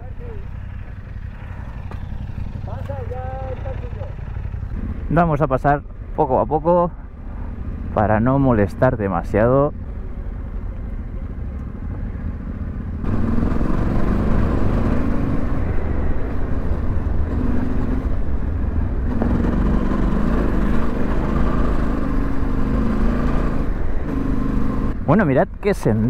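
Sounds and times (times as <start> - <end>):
motorcycle engine revving: 0.0 - 5.3, 11.8 - 25.1.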